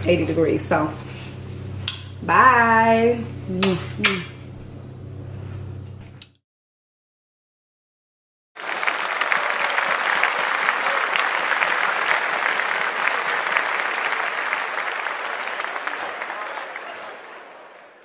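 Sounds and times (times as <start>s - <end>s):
crowd applause: 8.6s - 18.0s.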